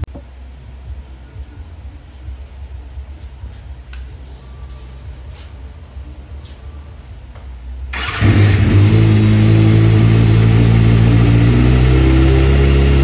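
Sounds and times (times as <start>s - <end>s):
motorcycle engine starting and running: 7.9s - 13.0s.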